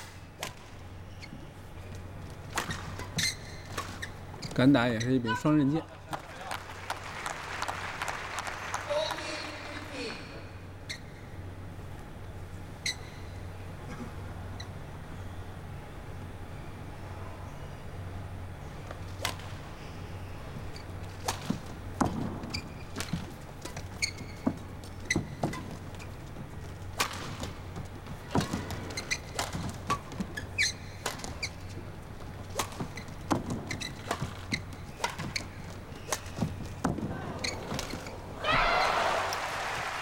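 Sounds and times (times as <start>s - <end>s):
low hall hum: 0.0s - 40.0s
sneakers squeaking on court: 0.5s - 5.2s, 12.8s - 13.5s, 19.0s - 38.9s
racket hitting shuttlecock: 21.2s - 26.1s, 26.9s - 31.7s, 32.5s - 38.7s.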